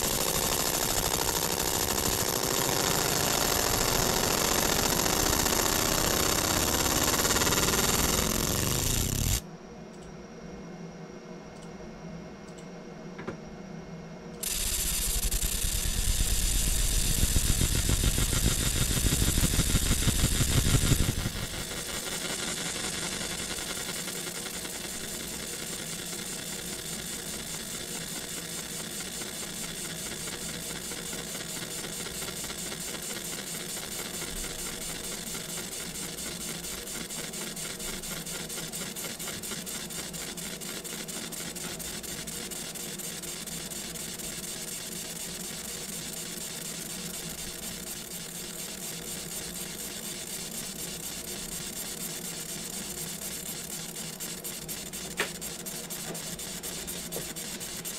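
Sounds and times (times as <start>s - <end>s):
laser buzzing on metal: 0.0s - 9.4s, 14.4s - 57.9s
fan hum and whine: 0.0s - 42.5s.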